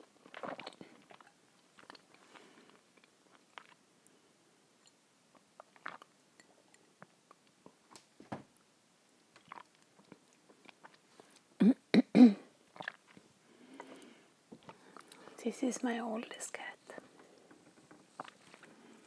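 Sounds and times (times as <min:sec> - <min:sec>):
chewing: 0:00.2 - 0:03.8, 0:09.3 - 0:11.4, 0:12.7 - 0:13.2, 0:18.1 - 0:19.0
swallowing: 0:00.2 - 0:03.8, 0:09.4 - 0:11.0, 0:12.7 - 0:15.3, 0:18.1 - 0:19.0.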